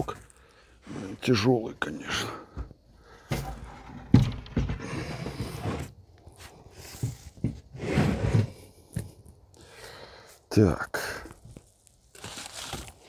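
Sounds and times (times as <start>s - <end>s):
board rubbing: 3.4s - 5.9s, 6.9s - 8.6s.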